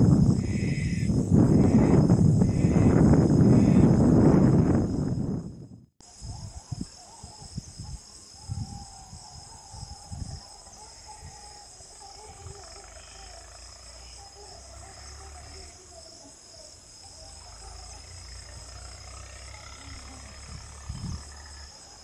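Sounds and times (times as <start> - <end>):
low rumble: 0.0 - 5.9
insect high-pitched trill: 0.0 - 22.0
wavering mid-pitched insect call: 0.0 - 22.0.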